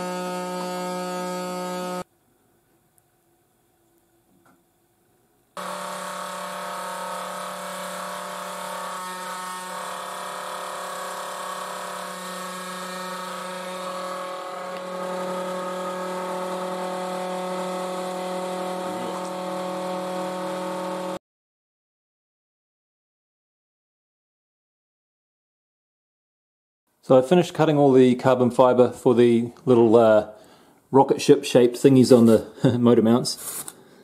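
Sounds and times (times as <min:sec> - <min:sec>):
router spindle whining hum: 0:00.0 - 0:02.1, 0:05.6 - 0:21.2.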